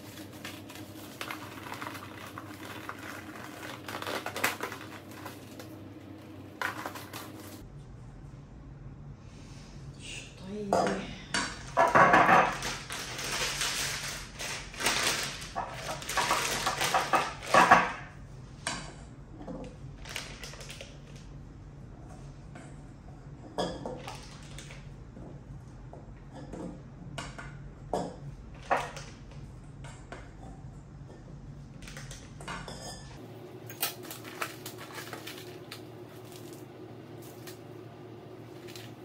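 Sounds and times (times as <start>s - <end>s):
plastic bag crinkling: 0.0s - 7.6s, 11.8s - 17.6s, 20.0s - 21.2s, 33.7s - 37.7s, 38.4s - 39.0s.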